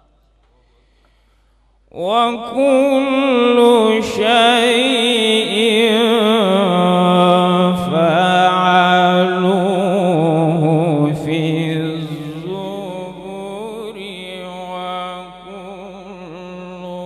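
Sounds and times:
breath: 0:00.4 - 0:01.9
man reciting melodically: 0:01.9 - 0:17.0.

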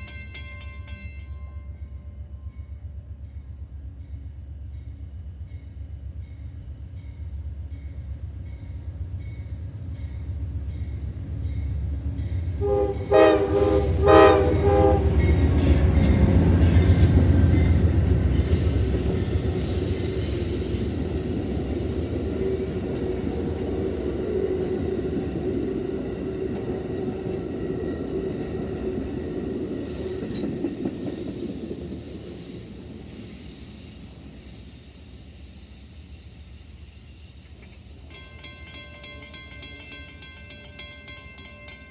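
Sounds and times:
railroad crossing bell ringing: 0:00.0 - 0:26.3, 0:37.9 - 0:41.9
train passing with rumble: 0:00.0 - 0:41.9
locomotive horn blasts: 0:12.6 - 0:15.4.

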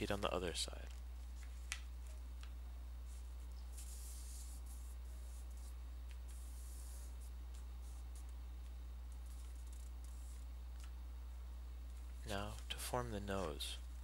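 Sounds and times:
low electrical hum: 0:00.0 - 0:14.0
fingers rubbing paper: 0:03.1 - 0:08.3, 0:09.2 - 0:10.4.

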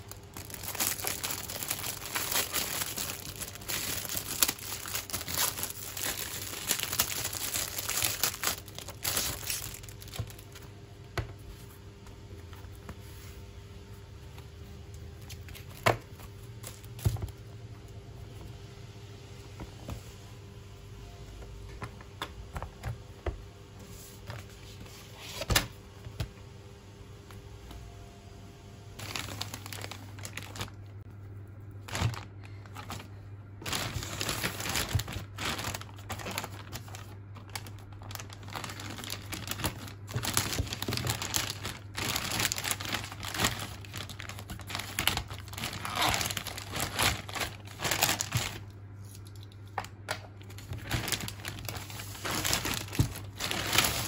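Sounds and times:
plastic bag crinkling and tearing: 0:00.0 - 0:10.6, 0:29.0 - 0:31.0, 0:31.7 - 0:54.0.

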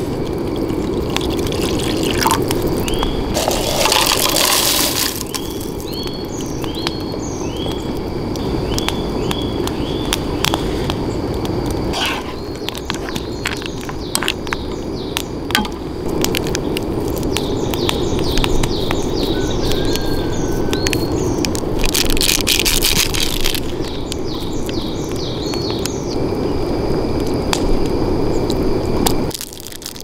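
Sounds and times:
pan bubbling on gas stove: 0:00.0 - 0:26.1
crackles and pops: 0:00.0 - 0:30.0
birds chirping: 0:00.6 - 0:11.3, 0:11.9 - 0:15.8, 0:16.5 - 0:21.6, 0:23.6 - 0:26.6
plastic wrapper crinkling: 0:03.4 - 0:05.8, 0:21.8 - 0:23.8, 0:29.3 - 0:30.0.

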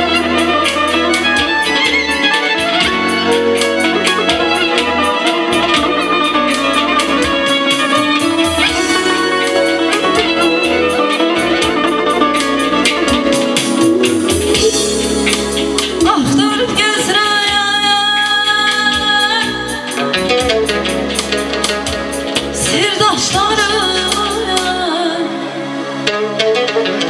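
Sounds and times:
live band with guitar and synthesizer: 0:00.0 - 0:27.0
woman singing into microphone: 0:15.7 - 0:20.6, 0:22.5 - 0:26.9.

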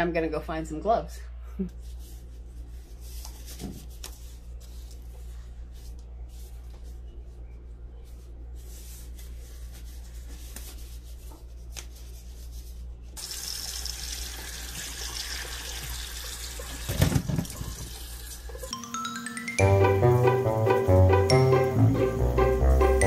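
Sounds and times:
water poured into colander: 0:13.2 - 0:18.4.

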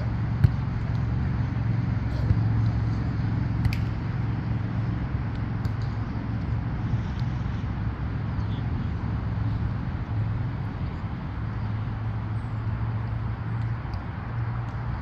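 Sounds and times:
low outdoor background rumble: 0:00.0 - 0:15.0.

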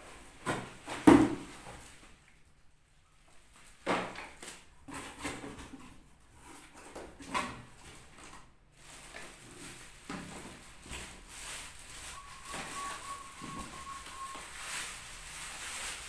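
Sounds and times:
plastic wrapping crinkling: 0:07.7 - 0:16.0.

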